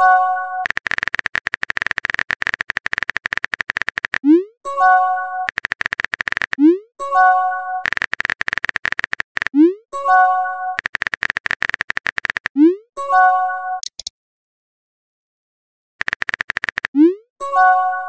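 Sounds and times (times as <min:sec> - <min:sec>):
keyboard typing clicks: 0:00.0 - 0:04.4, 0:05.4 - 0:06.8, 0:07.8 - 0:09.7, 0:10.8 - 0:12.7, 0:13.8 - 0:14.1, 0:16.0 - 0:17.2.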